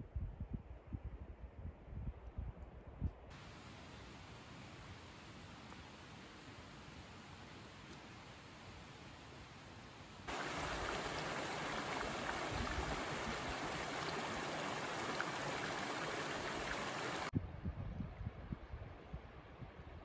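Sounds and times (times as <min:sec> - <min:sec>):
creek water rushing over rocks: 0:10.3 - 0:17.3
wind buffeting microphone: 0:10.3 - 0:18.9.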